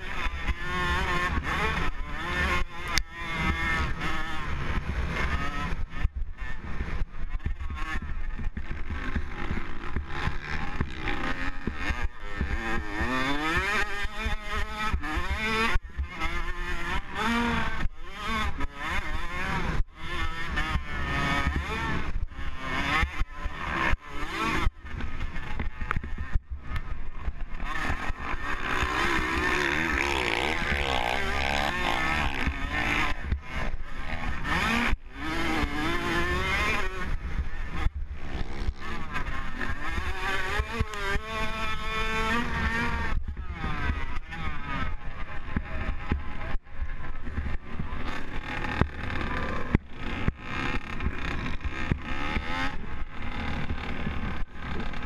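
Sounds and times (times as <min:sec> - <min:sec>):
motorbike engine revving: 0:00.0 - 0:55.0.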